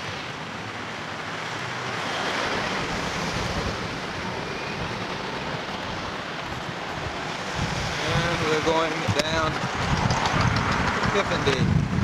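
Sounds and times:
wind on microphone: 2.8 - 12.0.

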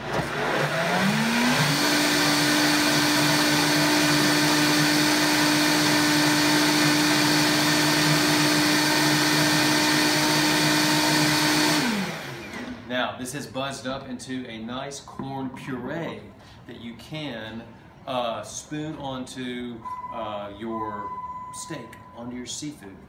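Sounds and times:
blender motor running: 0.0 - 12.8.

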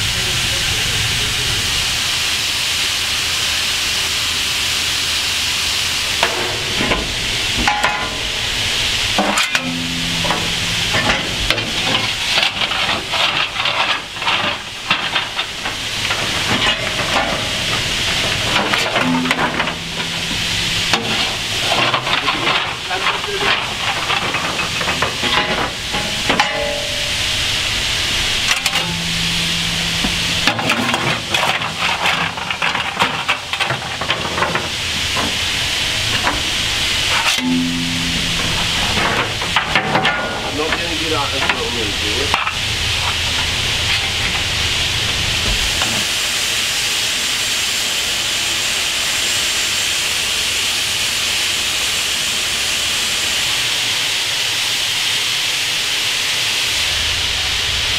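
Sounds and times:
steam hissing: 0.0 - 57.9
shovel scraping coal: 6.1 - 44.6.

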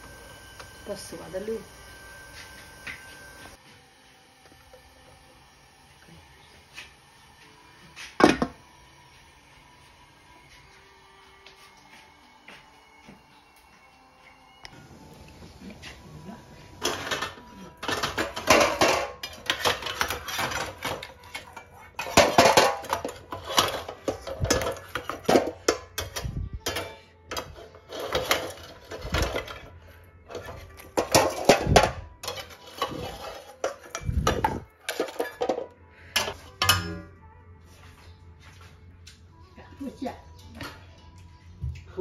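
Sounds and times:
metal kitchenware clattering: 16.8 - 37.1.

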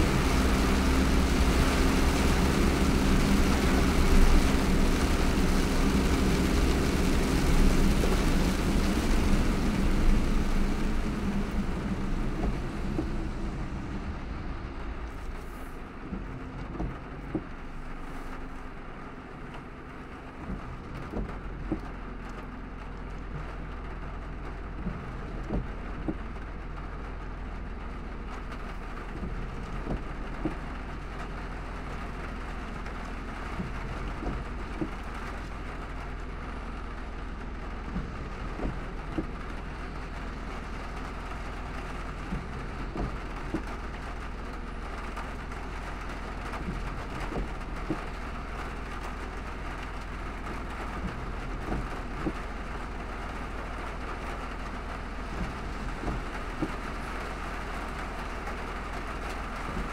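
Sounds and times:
low hum: 0.0 - 22.8
heavy rain: 0.0 - 59.9
tyres on wet road: 0.0 - 59.9.

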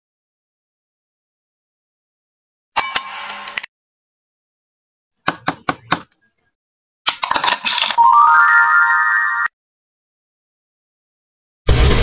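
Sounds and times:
rising twinkling chime: 8.0 - 9.5.

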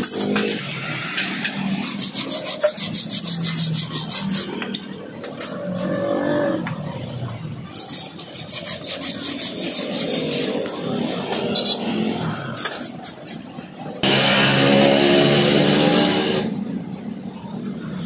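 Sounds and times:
wire brush scrubbing radiator fins: 1.5 - 4.7, 7.7 - 13.4.

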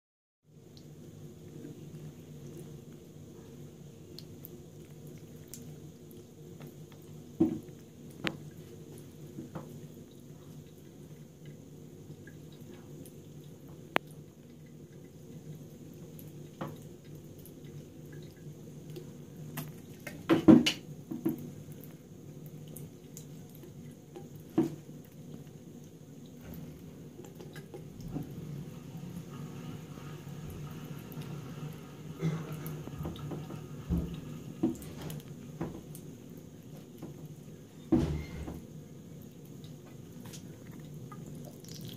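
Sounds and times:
tap water trickling into sink: 4.2 - 28.6, 32.4 - 38.7.

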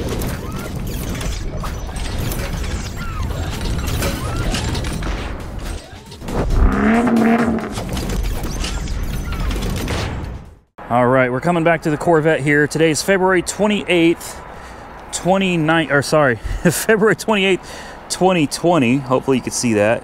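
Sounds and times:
low rumble: 6.2 - 8.1
rising pitched whine: 6.3 - 8.0.

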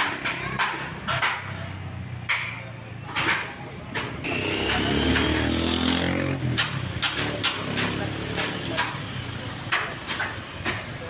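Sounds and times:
sharp hammering knocks: 0.0 - 11.0
vehicle engine passing by: 4.2 - 9.4.

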